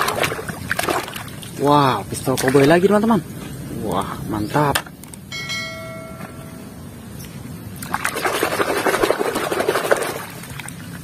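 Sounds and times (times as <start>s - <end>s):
electronic chime: 5.3s - 6.9s.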